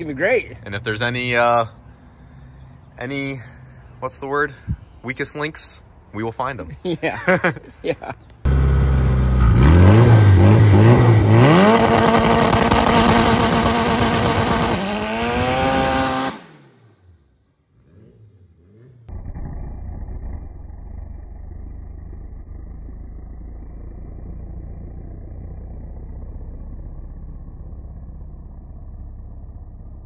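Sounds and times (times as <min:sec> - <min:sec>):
low engine running: 0:08.4 - 0:13.3, 0:19.2 - 0:30.0
engine revving hard: 0:08.5 - 0:17.0, 0:17.7 - 0:19.1.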